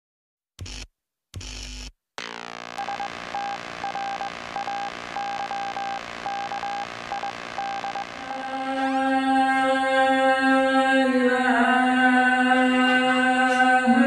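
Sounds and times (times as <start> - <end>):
high pulsing beeps: 2.2 - 8.9
held synthesizer chord: 2.2 - 9.7.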